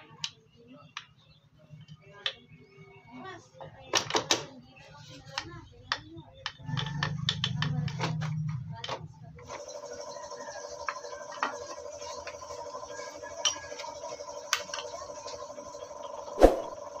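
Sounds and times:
steady hum: 16.2 - 17.0.

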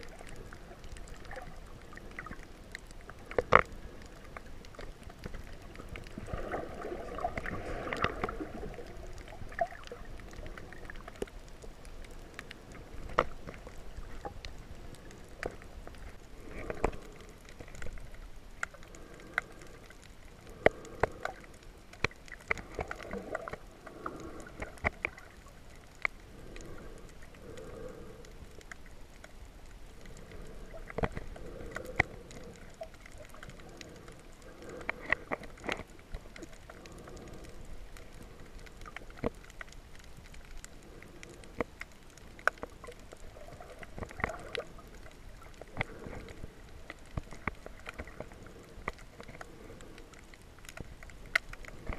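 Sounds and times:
muffled underwater water wash: 0.0 - 51.9
underwater clicks and pops: 3.1 - 11.4, 12.4 - 19.6, 20.5 - 25.3, 30.0 - 34.0.

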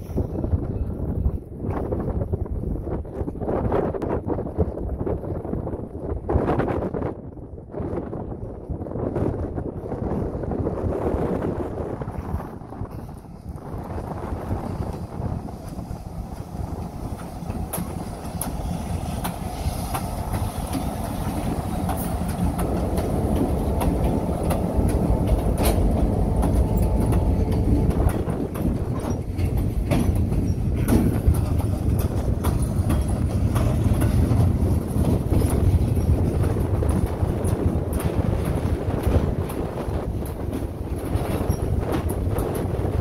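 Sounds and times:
diesel locomotive engine rumble: 0.0 - 43.0
freight car wheels clicking on rails: 12.9 - 43.0.

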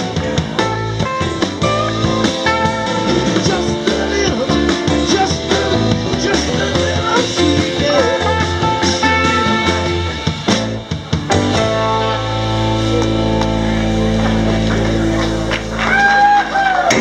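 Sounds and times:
drum kit: 0.0 - 17.0
electric guitars: 0.0 - 17.0
keyboard: 0.0 - 17.0.

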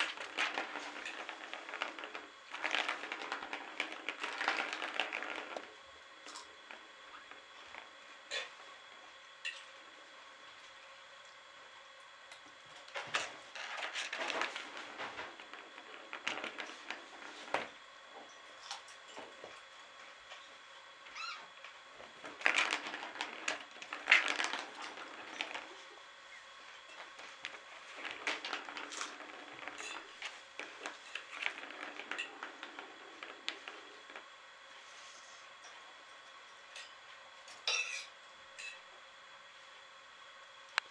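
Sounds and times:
plastic ball rattling around track: 0.0 - 8.5, 12.8 - 17.8, 21.1 - 34.4.

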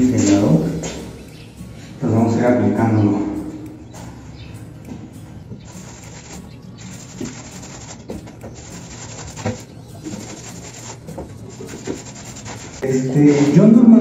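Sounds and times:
paintbrush scraping rough wall: 5.7 - 12.8.

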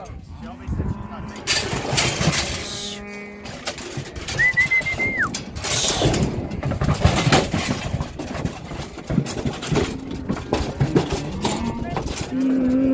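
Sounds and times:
metal cattle chute clanking: 0.0 - 12.9
short high whistle: 4.4 - 5.3.

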